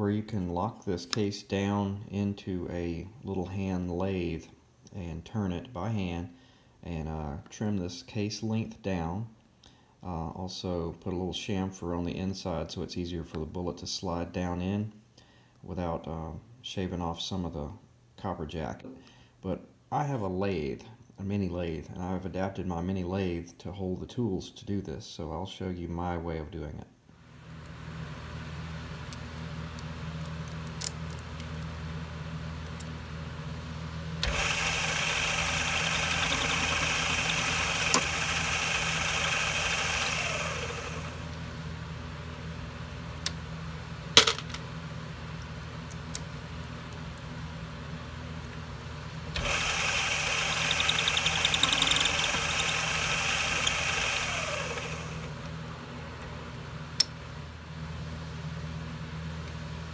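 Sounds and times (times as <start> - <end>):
steady low hum: 26.4 - 59.9
mini lathe running: 34.2 - 41.4, 49.4 - 55.4.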